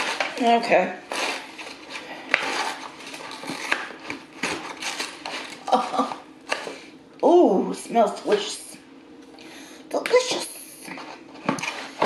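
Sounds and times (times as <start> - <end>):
paperboard box rustling and scraping: 1.1 - 5.6.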